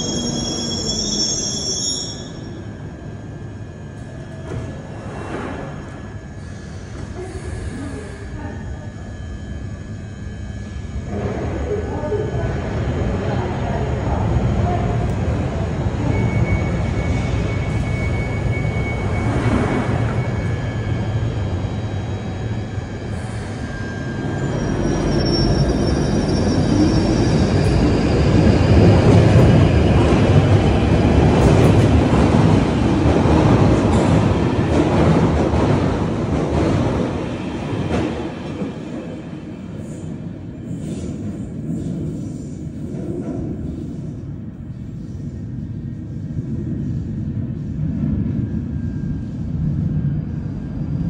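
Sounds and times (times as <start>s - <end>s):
high wheel squeals: 0.0s - 2.6s, 23.2s - 28.1s
underground train rumbling away: 0.0s - 51.0s.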